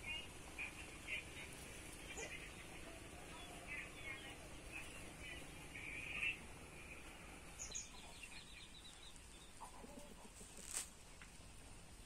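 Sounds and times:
hen clucking: 7.6s - 10.8s.

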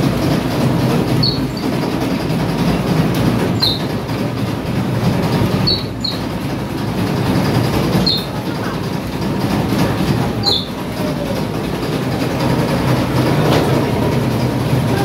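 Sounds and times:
bakery machinery rumbling: 0.0s - 15.0s
high squeaks: 1.1s - 2.0s, 3.5s - 4.1s, 5.5s - 6.5s, 7.8s - 8.7s, 10.3s - 11.3s.

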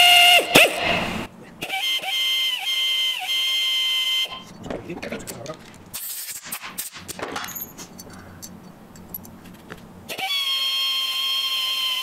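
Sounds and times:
tool handling clicks and knocks: 7.0s - 9.9s.

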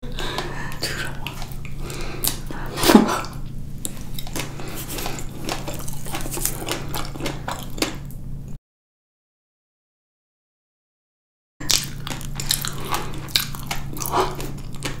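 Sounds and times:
steady low hum: 0.0s - 8.6s, 11.6s - 15.0s
fig being bitten and chewed: 0.2s - 8.2s, 11.6s - 15.0s.

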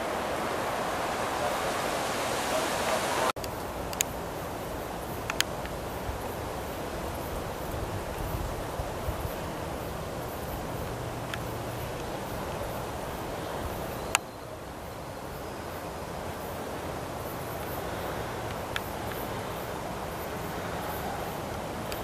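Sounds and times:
wind on microphone: 0.0s - 3.3s, 7.0s - 11.1s
faint ticks: 3.4s - 4.2s, 5.2s - 6.4s, 10.3s - 12.4s, 18.4s - 19.5s.

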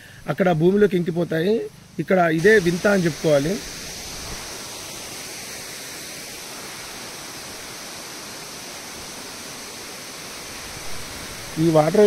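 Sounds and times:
waterfall pouring into pool: 2.4s - 12.0s.

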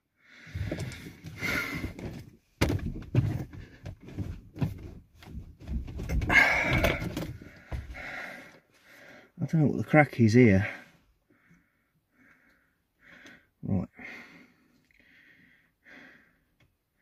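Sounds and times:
steering wheel knocks and thunks: 1.9s - 8.0s.

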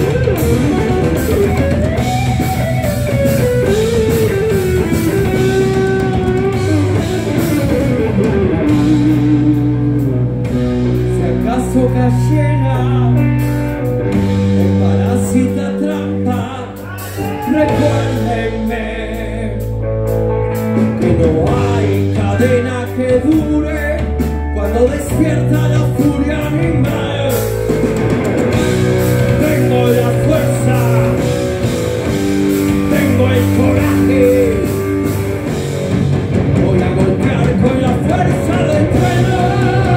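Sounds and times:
heavy metal band playing: 0.0s - 39.9s
lead vocal singing: 14.6s - 19.8s, 20.8s - 28.0s, 29.0s - 35.4s, 36.4s - 39.9s.

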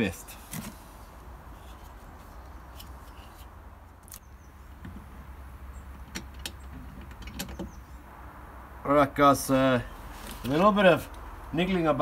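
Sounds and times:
clicks knocks and rattles of parts: 6.0s - 7.7s.

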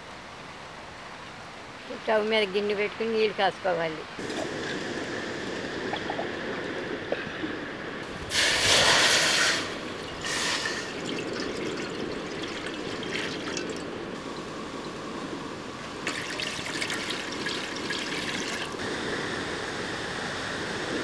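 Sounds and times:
water pouring into a metal pan: 8.3s - 13.8s, 16.0s - 18.8s.

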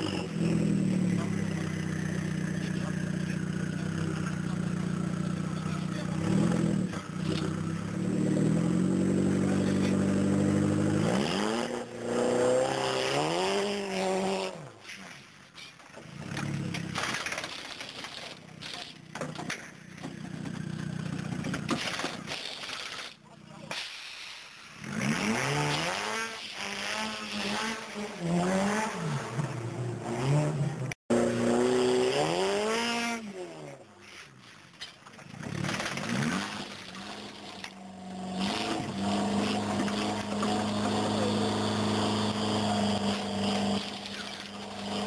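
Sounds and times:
car engine hum: 0.0s - 12.3s, 35.0s - 45.0s
pneumatic impact wrench rattling: 16.2s - 28.0s, 34.1s - 45.0s.

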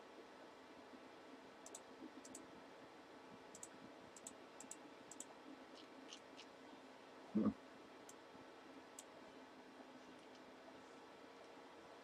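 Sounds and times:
low steady hum: 0.0s - 12.0s
computer mouse clicks: 1.6s - 2.5s, 3.5s - 6.5s.

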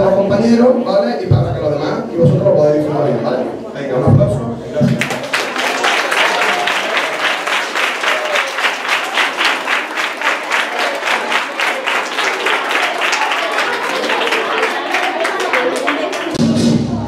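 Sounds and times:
children applauding: 4.9s - 16.5s.

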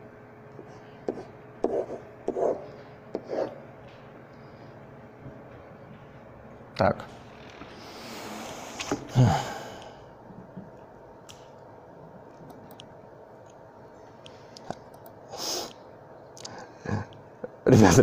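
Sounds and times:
man sighing: 9.1s - 10.1s.

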